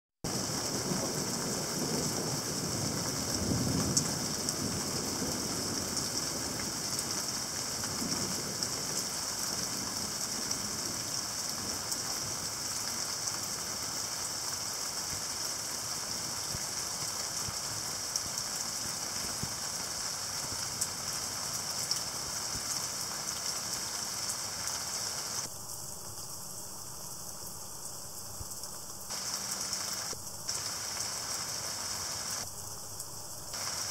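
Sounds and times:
rain falling on ground: 0.2s - 33.9s.

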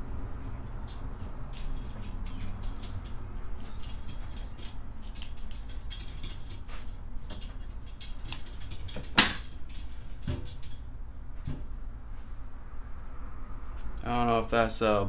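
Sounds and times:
low steady hum: 0.0s - 5.9s.

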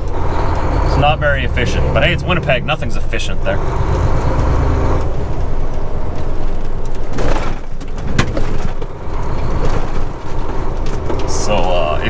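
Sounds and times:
truck engine and road rumble: 0.0s - 12.0s
rattle: 5.4s - 11.8s.

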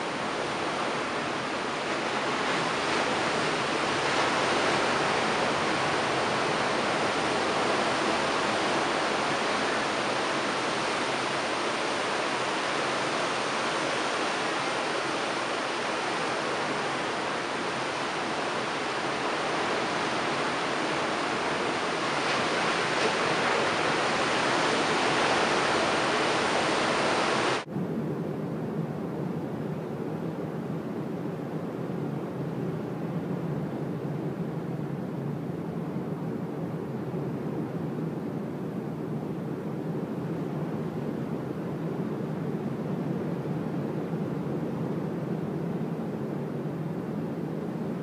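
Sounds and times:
ocean surf breaking on rocks: 0.0s - 27.7s.

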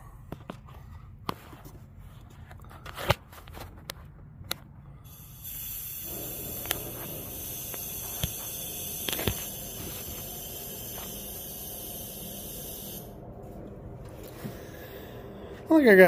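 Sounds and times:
compressed air hissing: 5.0s - 13.2s.

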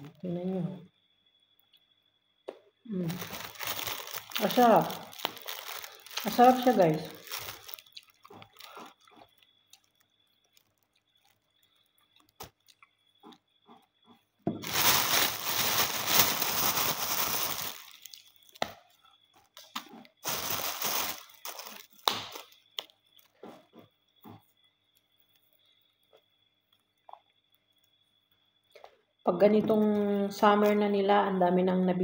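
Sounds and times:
plastic bag crinkling: 3.0s - 12.7s, 14.6s - 18.6s, 20.2s - 22.6s
bean pods snapping: 3.1s - 8.8s, 21.1s - 22.9s.

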